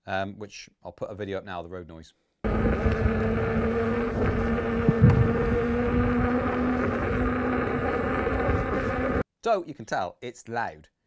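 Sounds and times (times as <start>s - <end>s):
tyre drone with low hum: 2.5s - 9.2s.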